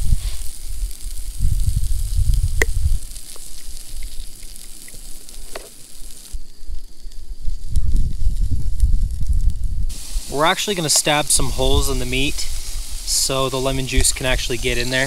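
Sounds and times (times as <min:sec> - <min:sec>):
food sizzling on stove: 0:00.0 - 0:15.0.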